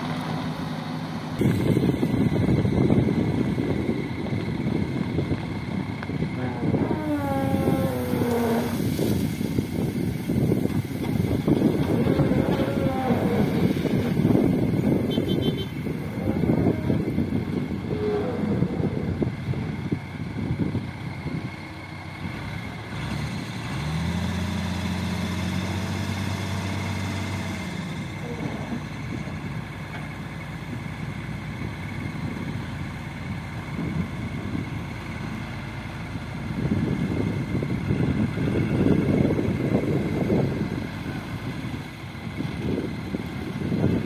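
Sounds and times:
diesel engine working: 0.0 - 44.0
hydraulic whine: 6.2 - 19.9, 28.1 - 29.4.

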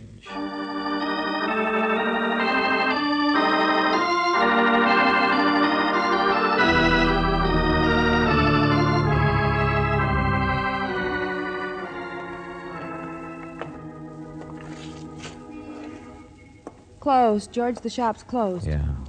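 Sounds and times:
organ chords: 0.0 - 17.0
deep bass: 6.8 - 11.2, 18.6 - 19.0.

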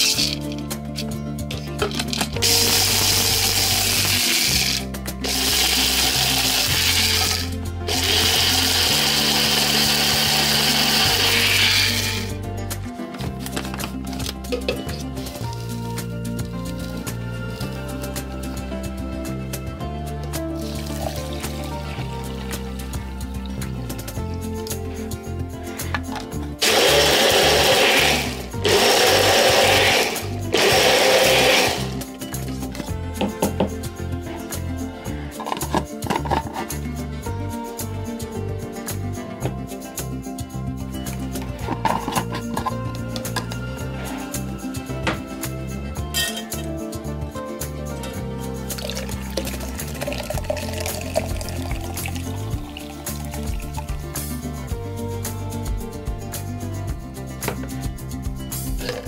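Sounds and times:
blender motor grinding food: 2.4 - 12.3, 26.6 - 32.0.

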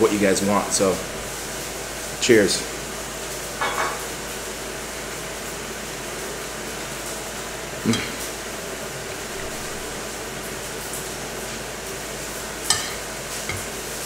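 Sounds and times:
room hiss: 0.0 - 14.0
man humming mm: 7.8 - 8.3
cutlery on a bowl: 12.7 - 13.7.

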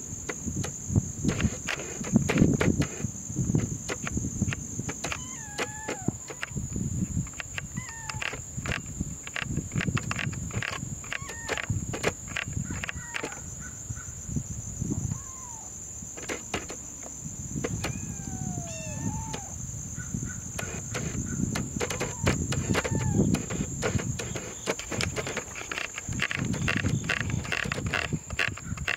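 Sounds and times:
camera dial clicks: 20.6 - 28.9.

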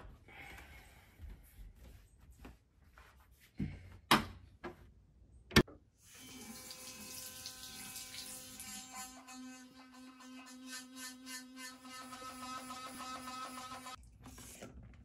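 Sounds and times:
sink faucet running: 6.0 - 11.3.

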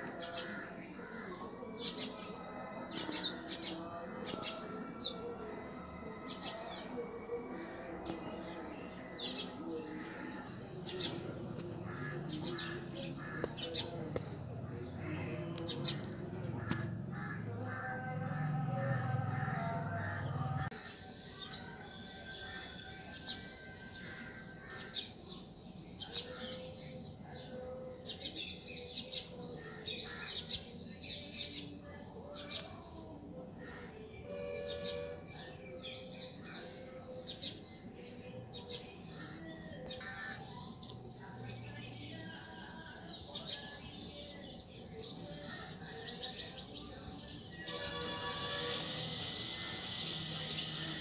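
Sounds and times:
small birds chirping: 35.9 - 51.0.

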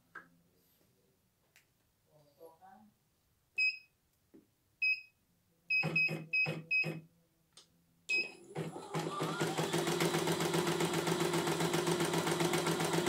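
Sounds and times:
control panel keys beeping: 5.7 - 7.0.

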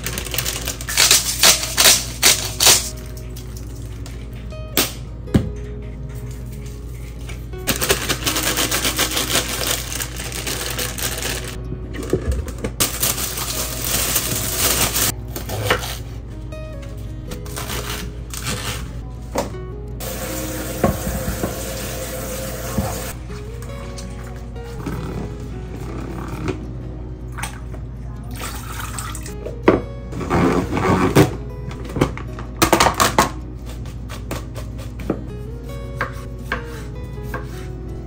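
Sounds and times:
plastic bags crinkling: 0.0 - 2.9, 7.7 - 15.1
soft background music: 0.0 - 38.0.

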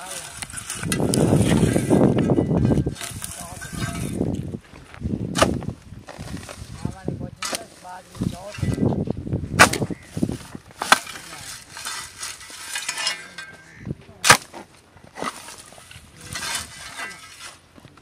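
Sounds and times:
hoe striking soil: 0.0 - 4.4, 5.3 - 6.6, 7.4 - 8.9, 9.6 - 17.6
scraping through sand and twigs: 2.7 - 9.0, 9.8 - 17.6.

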